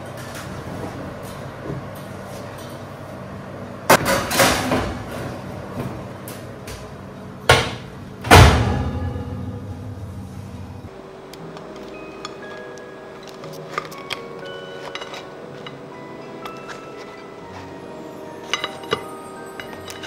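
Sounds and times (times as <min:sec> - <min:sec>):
oven humming: 0:00.0 - 0:20.0
oven door shutting with a thud: 0:07.5 - 0:09.9
metal baking tray clattering: 0:18.4 - 0:20.0.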